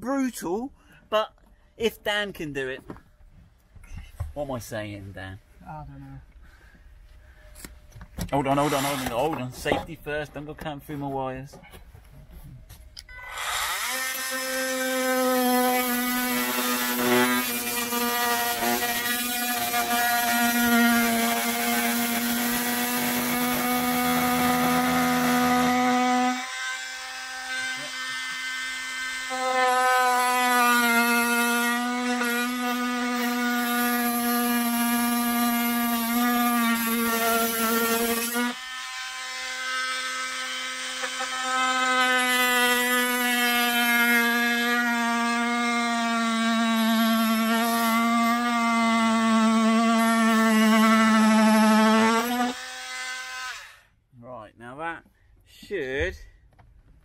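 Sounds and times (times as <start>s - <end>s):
oscillating multi-tool cutting carpet: 8.5s - 9.4s, 13.0s - 53.8s.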